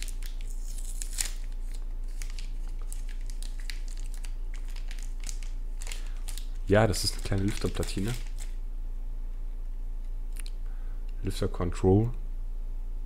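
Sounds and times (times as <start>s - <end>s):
plastic packet crinkling: 0.0s - 8.6s.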